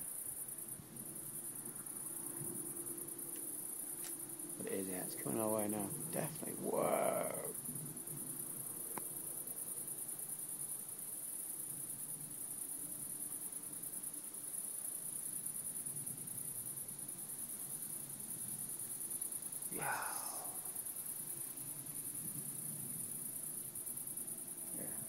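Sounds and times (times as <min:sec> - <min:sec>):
crickets chirping: 0:00.0 - 0:25.0
short vocal sound: 0:06.6 - 0:07.5, 0:19.7 - 0:20.8.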